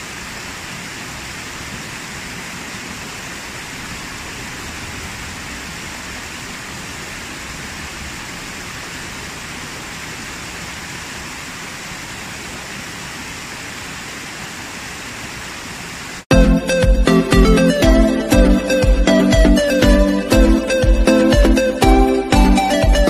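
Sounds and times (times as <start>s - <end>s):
waterfall pouring over rocks: 0.0s - 16.3s
loud electronic music: 16.3s - 23.0s.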